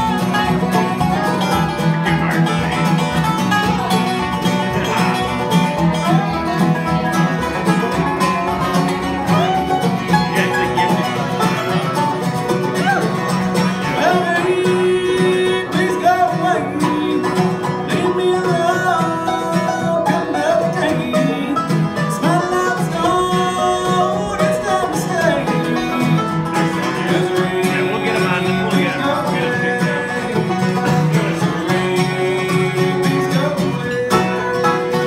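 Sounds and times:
bluegrass band playing: 0:00.0 - 0:35.0
man singing: 0:09.2 - 0:12.0, 0:12.6 - 0:35.0.

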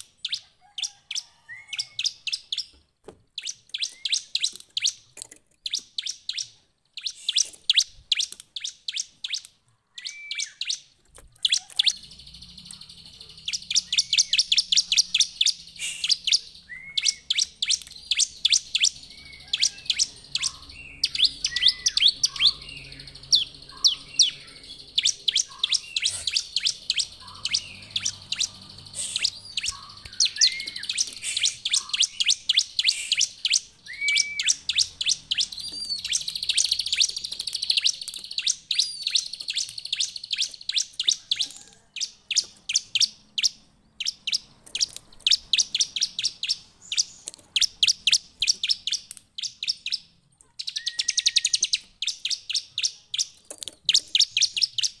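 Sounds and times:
bird singing sharp high chips: 0:03.4 - 0:55.0
lower slurred bird notes: 0:05.7 - 0:41.7.

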